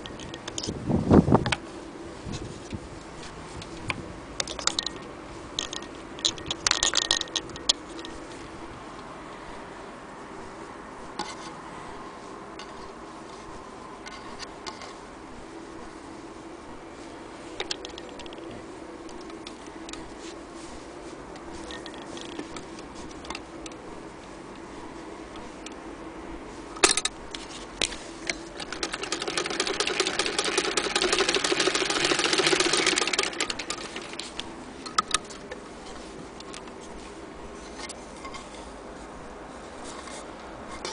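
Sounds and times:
faint background hum: 0.0s - 40.9s
thread rubbing on metal: 27.2s - 36.2s
sewing machine faint clicks: 28.2s - 34.5s.

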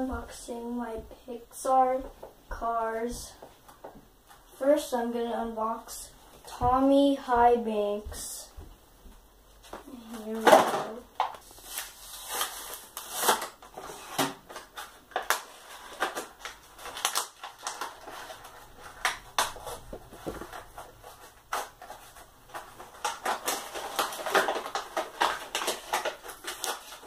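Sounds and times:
plastic packaging crackling: 9.6s - 27.0s.

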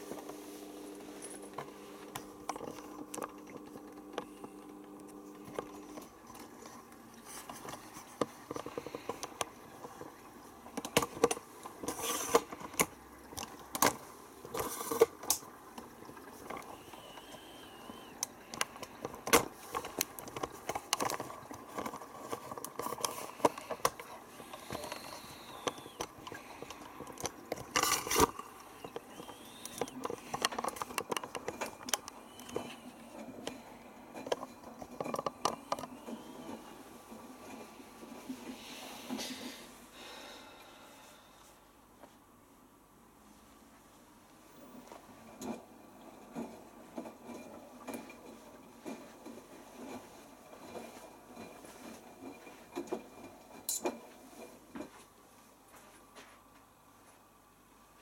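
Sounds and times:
washing machine running: 0.0s - 41.1s.

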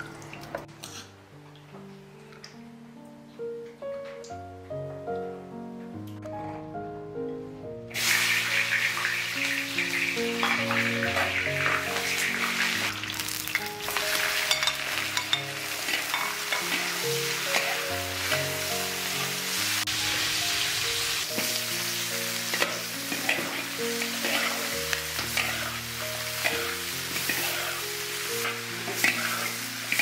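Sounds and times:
soft background music: 0.0s - 30.0s
food sizzling in hot oil: 7.9s - 30.0s
metal spatula scraping wok: 22.5s - 30.0s.

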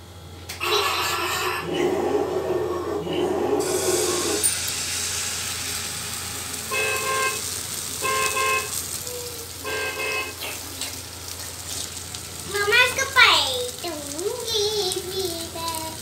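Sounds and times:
batter sizzling in frying pan: 3.6s - 16.0s
vehicle horn honking: 6.7s - 8.8s, 9.6s - 10.5s.

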